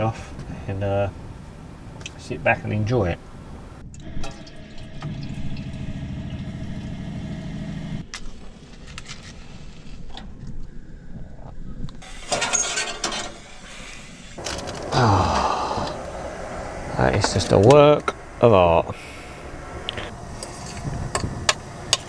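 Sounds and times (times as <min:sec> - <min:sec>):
electric water pump humming: 0:04.0 - 0:08.0, 0:14.4 - 0:22.0.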